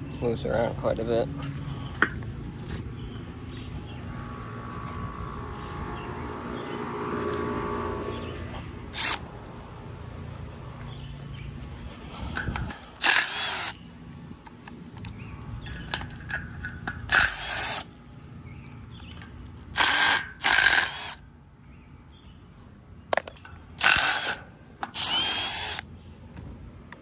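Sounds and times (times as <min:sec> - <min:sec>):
cordless drill spinning: 0:08.9 - 0:09.3, 0:12.8 - 0:13.8, 0:17.1 - 0:17.9, 0:19.7 - 0:21.2, 0:23.8 - 0:25.8.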